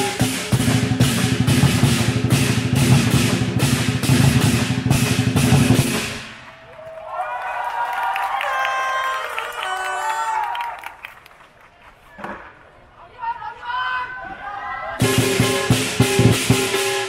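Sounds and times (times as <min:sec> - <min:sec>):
cymbal crashes: 0:00.0 - 0:06.4, 0:15.0 - 0:17.0
drum rolling fast: 0:00.0 - 0:06.4, 0:15.0 - 0:17.0.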